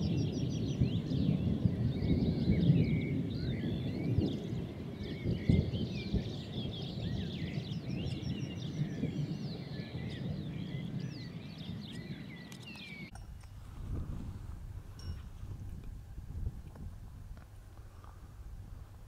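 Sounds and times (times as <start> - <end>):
songbirds chirping and whistling: 0.0 - 13.2
wind rumble: 0.0 - 19.0.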